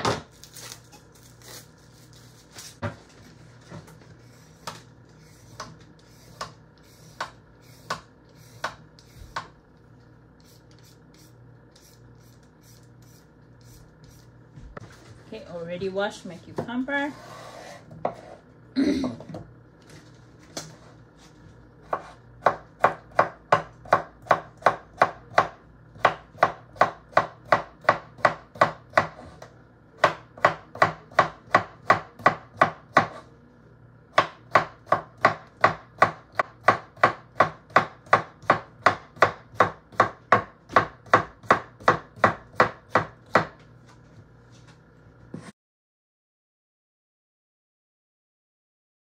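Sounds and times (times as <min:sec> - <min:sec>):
knife chopping on wooden board: 0:05.5 - 0:09.6, 0:21.8 - 0:33.3, 0:34.1 - 0:43.6.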